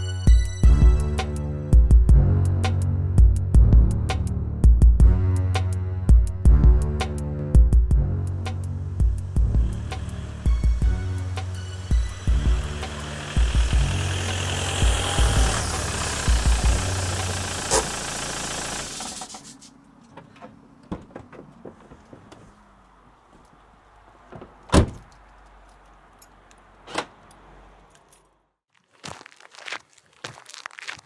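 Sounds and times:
car engine: 8.9s - 19.6s
car door shutting: 24.3s - 25.1s
footsteps: 28.7s - 31.0s.

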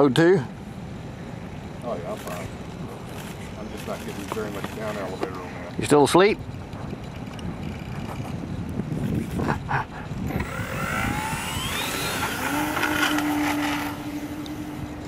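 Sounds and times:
model plane motor whine: 10.3s - 15.0s.

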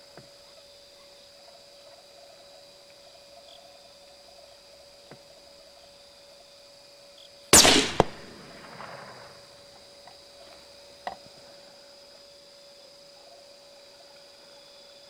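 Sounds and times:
rifle shot: 7.6s - 9.6s
sharp crack: 7.6s - 9.6s.

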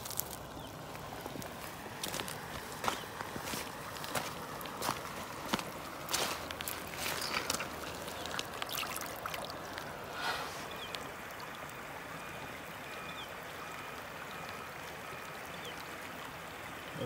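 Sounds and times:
footsteps crunching on wet gravel: 0.0s - 9.1s
flowing water rushing: 0.0s - 17.0s.

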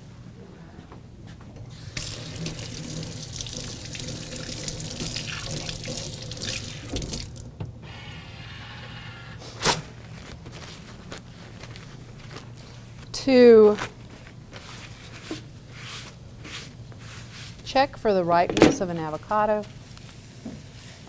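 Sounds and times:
water running from sink tap: 1.7s - 7.5s
paper towel tearing: 9.5s - 12.9s.

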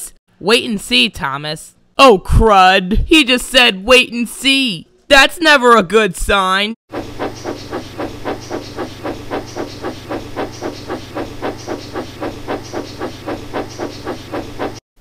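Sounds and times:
steady low hum: 6.9s - 14.8s.

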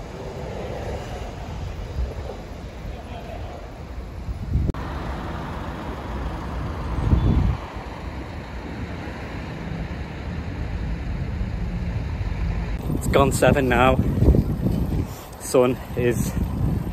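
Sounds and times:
wind noise: 0.0s - 4.9s, 5.9s - 16.9s
road traffic: 0.0s - 16.9s
loud low rumble: 4.5s - 15.1s.

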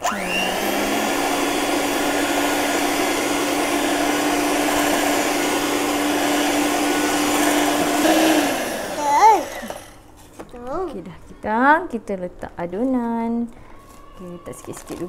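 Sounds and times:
electric mixer motor running: 0.0s - 10.0s.

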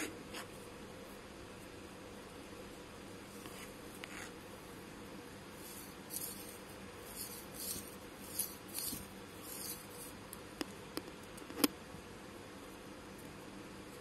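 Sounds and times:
thread swishing: 5.6s - 10.2s.

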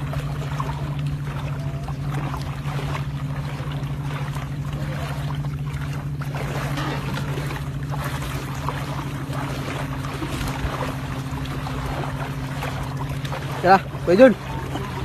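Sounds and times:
sea water moving around legs: 0.0s - 15.0s
steady low hum: 0.0s - 15.0s.

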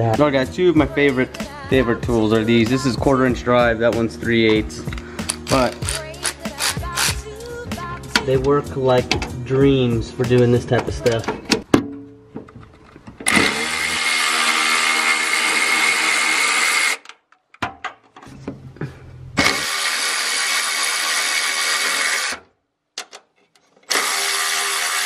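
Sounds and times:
cordless electric ratchet running: 4.9s - 7.3s, 13.3s - 17.0s, 19.4s - 22.4s, 23.9s - 25.0s.

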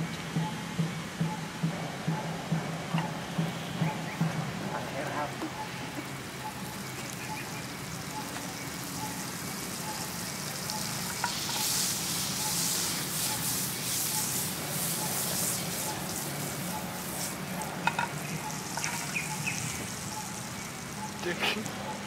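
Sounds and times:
butter sizzling in a frying pan: 6.6s - 21.7s.

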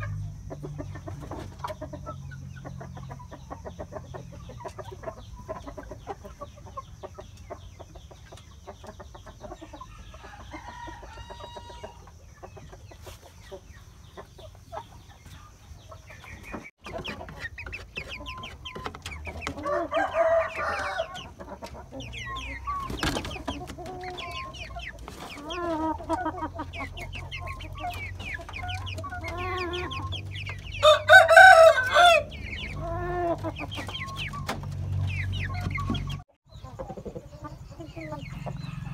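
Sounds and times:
chickens clucking: 0.0s - 38.9s
rooster crowing: 9.9s - 12.0s, 19.6s - 21.3s, 30.8s - 33.3s, 38.3s - 38.9s.

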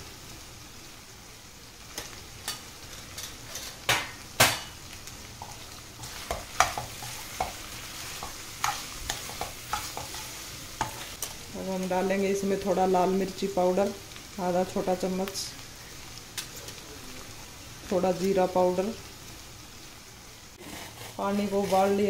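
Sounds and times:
low sizzle: 0.0s - 22.0s
spoon scraping in a pan: 5.4s - 11.4s, 20.6s - 22.0s.

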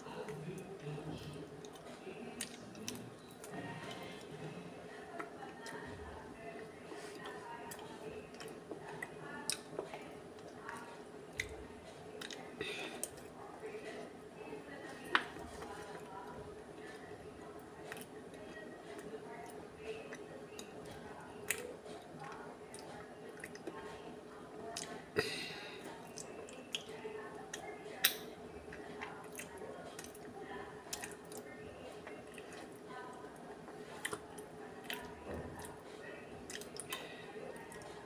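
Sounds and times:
faint steady hum: 0.0s - 38.0s
wet mouth and lip sounds: 27.5s - 28.2s.

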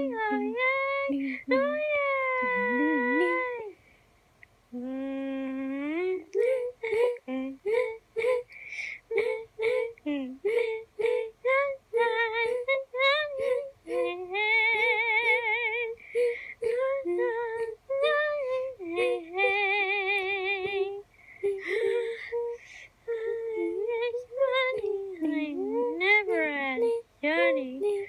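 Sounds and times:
high-pitched cartoon voice singing: 0.0s - 3.7s.

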